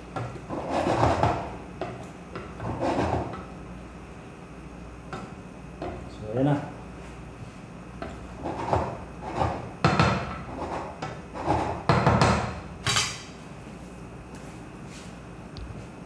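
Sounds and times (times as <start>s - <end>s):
wooden spoon scraping metal pot: 8.4s - 9.6s, 10.4s - 11.9s.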